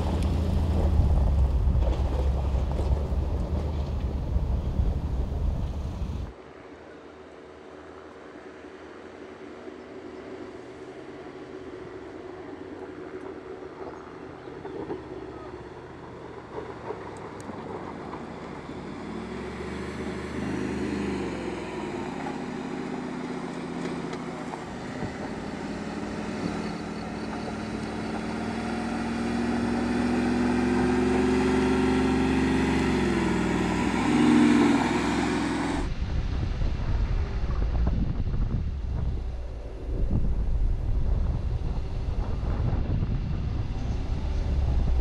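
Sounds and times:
engine pulling under load: 0.0 - 6.3, 14.6 - 36.0
wind buffeting microphone: 0.0 - 6.3, 12.9 - 45.0.

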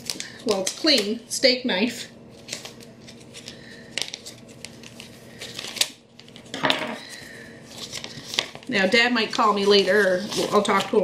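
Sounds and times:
paper rustling: 2.3 - 11.0
knife cutting paper envelope: 9.2 - 11.0.

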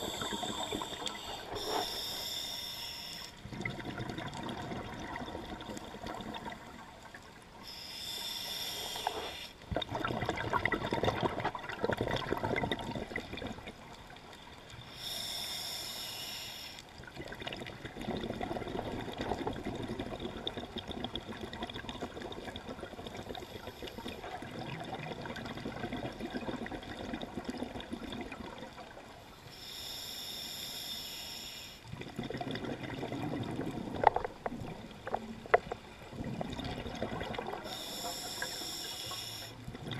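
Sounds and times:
hissing regulator inhalations: 0.0 - 3.4, 7.6 - 9.6, 14.9 - 16.9, 29.5 - 31.8, 37.6 - 39.7
bubbling exhalation underwater: 9.7 - 13.6, 17.2 - 23.4, 24.2 - 28.7, 31.9 - 34.8, 36.1 - 37.8.

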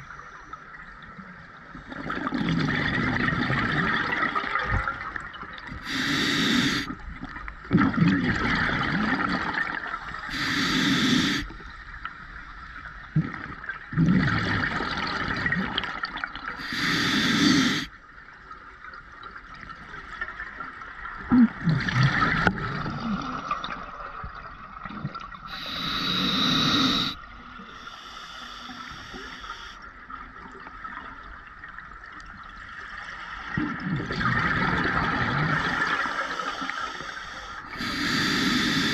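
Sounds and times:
regulator inhale hiss: 5.8 - 6.9, 10.1 - 11.6, 16.6 - 17.9, 25.5 - 29.8, 35.8 - 38.9.

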